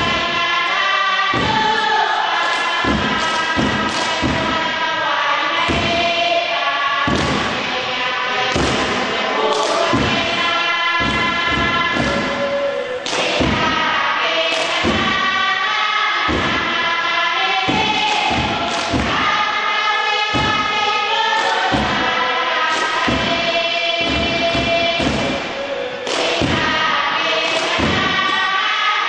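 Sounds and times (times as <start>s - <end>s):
heavy drum thumps: 0.0s - 0.4s, 1.3s - 1.9s, 2.8s - 4.8s, 5.6s - 6.2s, 7.1s - 7.9s, 8.5s - 9.2s, 9.8s - 12.5s, 13.2s - 13.9s, 14.7s - 15.5s, 16.2s - 17.0s, 17.6s - 19.5s, 20.3s - 20.9s, 21.6s - 25.6s, 26.2s - 26.9s, 27.8s - 28.4s
group singing a chant: 0.0s - 29.0s.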